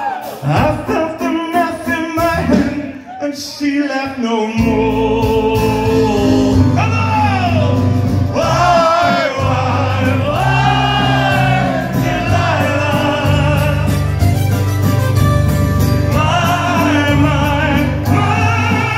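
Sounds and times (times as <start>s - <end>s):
drums: 0.0s - 3.2s, 4.5s - 18.9s
man singing into microphone: 0.4s - 7.8s, 8.4s - 14.1s, 16.1s - 18.9s
bass line: 4.6s - 18.9s.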